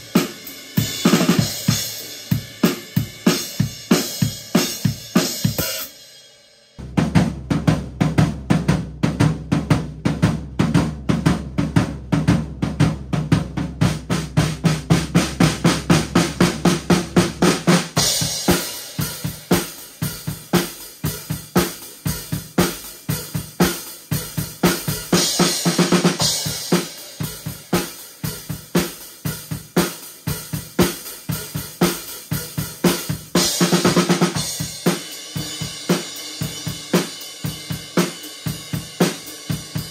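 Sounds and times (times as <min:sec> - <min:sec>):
drum kit groove: 0:00.0 - 0:39.9.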